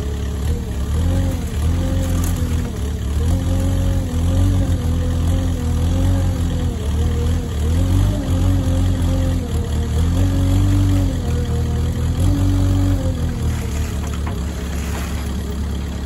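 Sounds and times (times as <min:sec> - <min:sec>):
loader diesel engine running: 0:00.0 - 0:16.0
gravel pouring into truck bed: 0:13.3 - 0:15.9.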